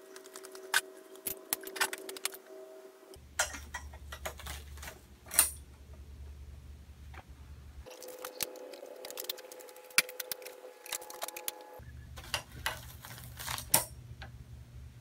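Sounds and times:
low hum: 0.0 - 15.0
metal poles clicking and clinking: 3.4 - 5.7, 12.2 - 14.0.

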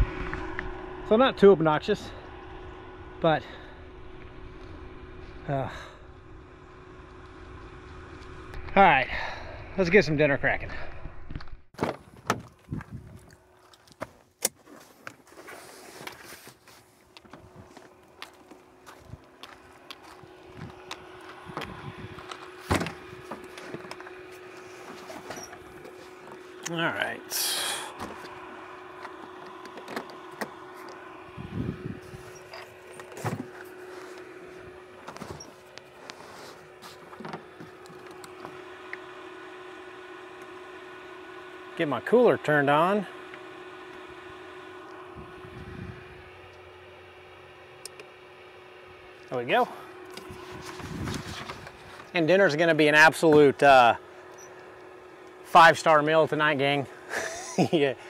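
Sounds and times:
steady machine hum: 0.0 - 58.0
knocks and clicks of gear: 11.3 - 15.3, 17.1 - 26.8, 28.0 - 31.0, 36.9 - 39.1.

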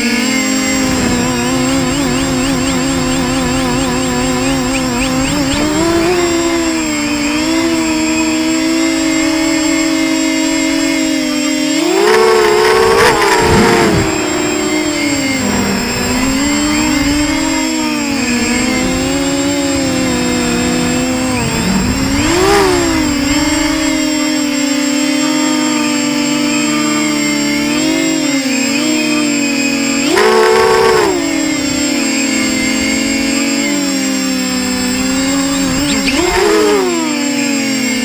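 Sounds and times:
drone propellers whining: 0.0 - 38.0.

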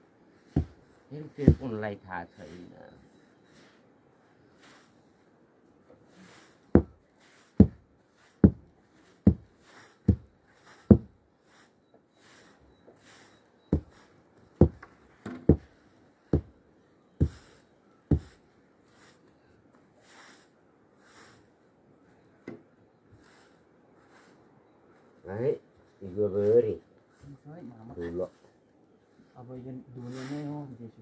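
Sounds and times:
wooden mallet pounding grain: 0.5 - 0.8, 1.4 - 1.8, 6.7 - 7.0, 7.6 - 11.1, 13.7 - 14.0, 14.6 - 14.9, 15.5 - 15.7, 16.3 - 16.5, 17.2 - 17.5, 18.1 - 18.4.

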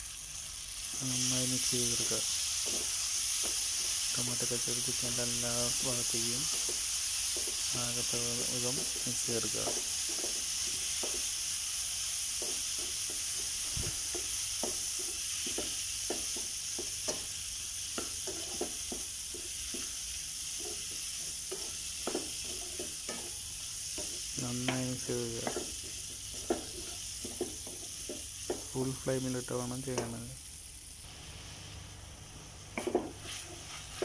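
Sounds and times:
chicken sizzling in metal pan: 0.0 - 34.0
utensil scraping and tapping pan: 8.8 - 11.2, 17.9 - 19.9, 20.6 - 28.7, 32.8 - 34.0.

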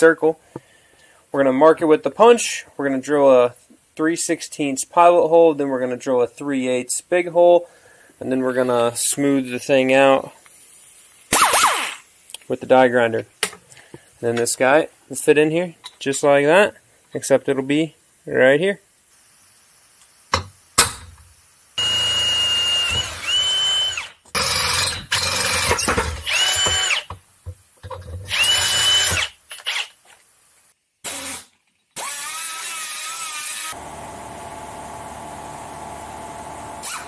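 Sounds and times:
cordless drill drilling metal: 21.8 - 27.2, 28.2 - 30.0, 31.0 - 33.8, 36.8 - 37.0.

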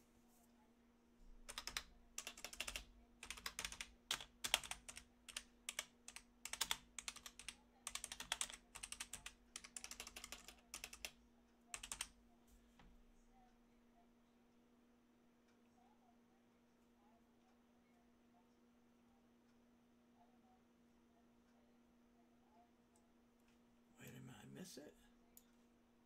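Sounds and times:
typing on computer keyboard: 1.4 - 12.2.

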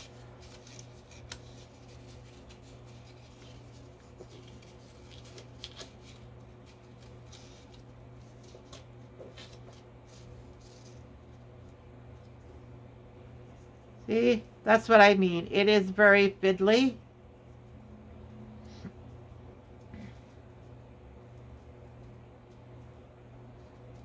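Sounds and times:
paper strips rustling and ticking: 0.0 - 12.5
steady low hum: 0.0 - 24.0.

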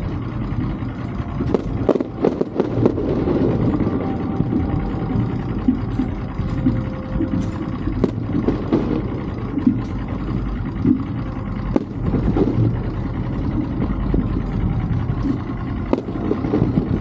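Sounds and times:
outboard motor idling: 0.0 - 17.0
fireworks bursting: 1.2 - 10.2, 11.6 - 14.2, 15.1 - 17.0.

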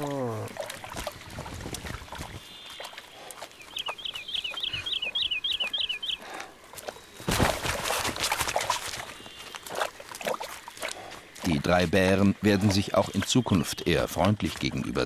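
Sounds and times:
bears splashing in water: 0.0 - 5.7, 6.4 - 15.0
bird calling falling notes: 3.6 - 6.3.

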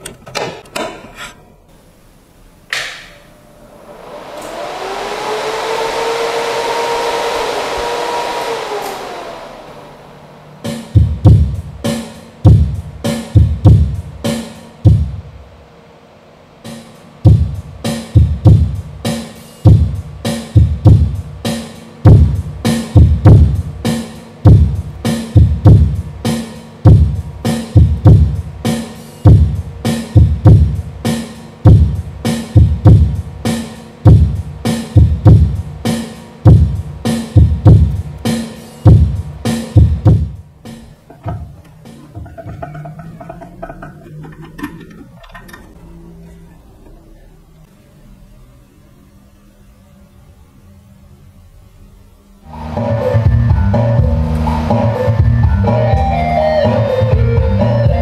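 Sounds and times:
synth sweep: 3.3 - 11.9
heavy bass drum beat: 10.6 - 15.4, 17.2 - 44.3, 52.5 - 58.0.

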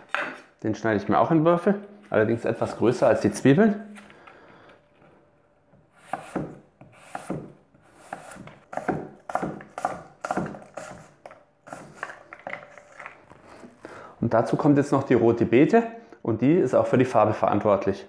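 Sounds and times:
knife chopping on cutting board: 5.9 - 12.1.

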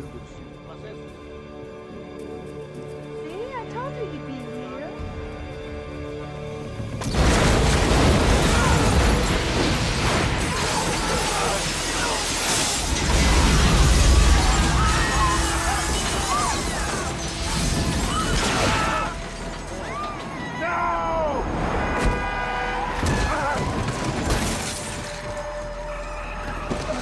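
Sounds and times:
dramatic music score: 0.0 - 27.0
falling debris: 6.9 - 20.7, 22.0 - 27.0
glass shattering: 7.0 - 20.4, 23.1 - 25.3
bomb explosion: 7.1 - 19.0.

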